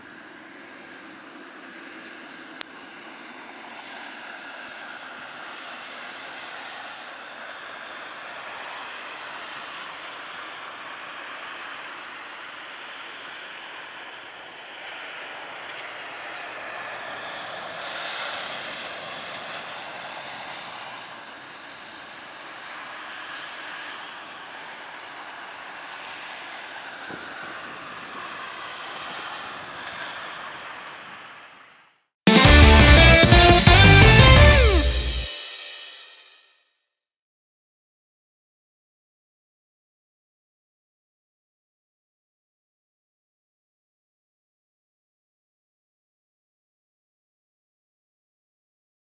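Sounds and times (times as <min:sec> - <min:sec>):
distant jet engine rush: 0:00.0 - 0:36.1.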